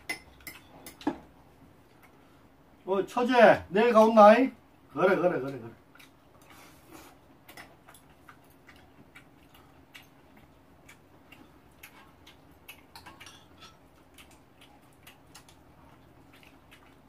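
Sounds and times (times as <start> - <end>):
chopsticks and spoon clicking on dishes: 0.0 - 1.2, 7.5 - 15.6
chewing: 5.4 - 17.0.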